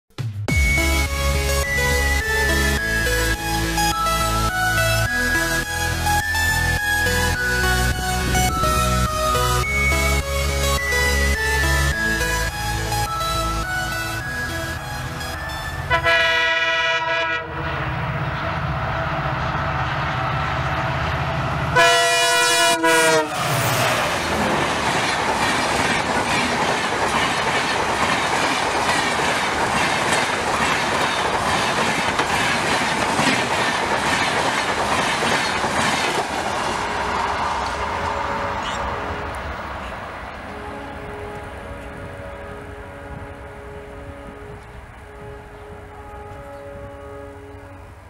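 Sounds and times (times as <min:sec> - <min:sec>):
diesel locomotive running hard: 0:00.5 - 0:48.0
train horn blast: 0:15.9 - 0:18.1, 0:21.7 - 0:23.6, 0:37.8 - 0:48.0
coaches rolling on rails: 0:17.6 - 0:48.0.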